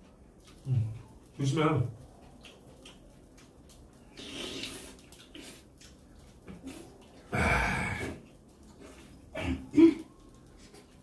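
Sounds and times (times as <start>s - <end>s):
quiet sipping and eating: 0.0s - 11.0s
loud slurp: 4.0s - 9.7s.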